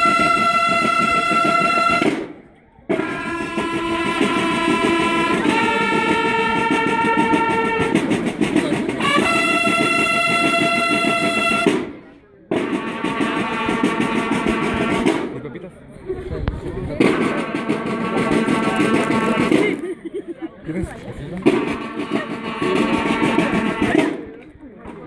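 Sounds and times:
bugles playing long notes: 0:00.0 - 0:02.3, 0:02.9 - 0:08.2, 0:08.9 - 0:11.8, 0:12.5 - 0:15.1, 0:17.2 - 0:19.6, 0:21.6 - 0:24.1
snare drum roll: 0:00.0 - 0:15.4, 0:17.0 - 0:19.8, 0:21.4 - 0:24.3.

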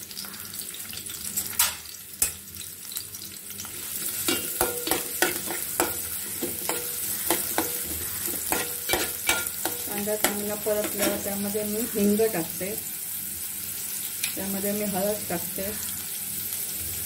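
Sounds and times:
onion sizzling in hot oil: 0:00.0 - 0:17.0
metal spoon scraping pot: 0:04.2 - 0:11.3.

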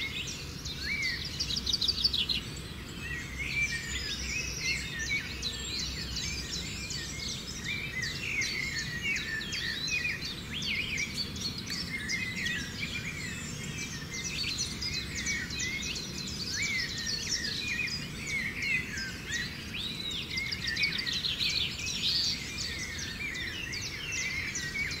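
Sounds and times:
birds chirping and whistling: 0:00.0 - 0:25.0.

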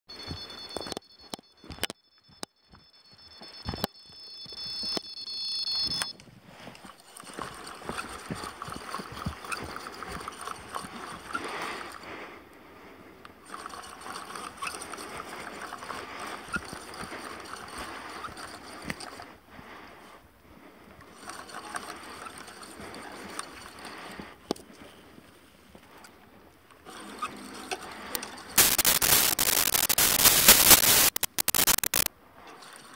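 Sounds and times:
electronic alarm high tone: 0:00.1 - 0:06.2, 0:28.6 - 0:32.1.

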